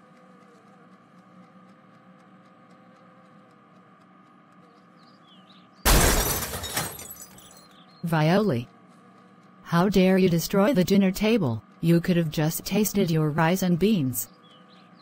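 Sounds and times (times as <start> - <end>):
crash with shattering: 5.9 - 7.4.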